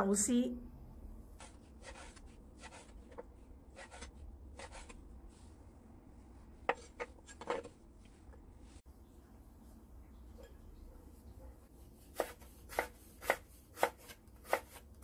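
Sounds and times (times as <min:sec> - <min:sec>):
knife cutting on wooden board: 0:01.4 - 0:05.0, 0:12.1 - 0:14.9.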